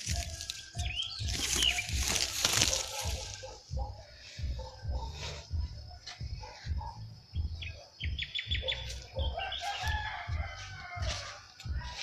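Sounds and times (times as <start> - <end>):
small birds chirping: 0.0 - 10.2
rooster crowing: 9.2 - 12.0.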